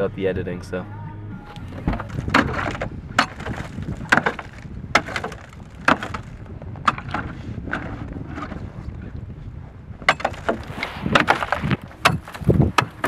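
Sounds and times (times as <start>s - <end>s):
pickaxe chopping ice: 2.2s - 6.2s.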